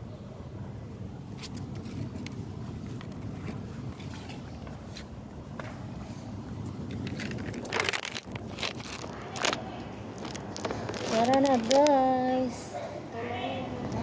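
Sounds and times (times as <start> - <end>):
low background rumble: 0.0 - 14.0
phone handling rustle: 6.9 - 12.1.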